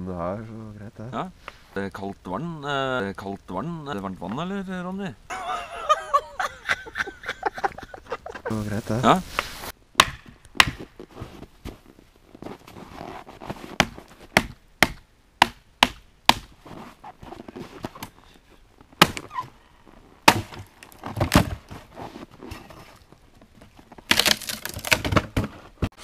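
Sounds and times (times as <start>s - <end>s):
handling and scraping noise: 7.7s - 9.8s, 10.8s - 14.4s, 16.5s - 26.0s.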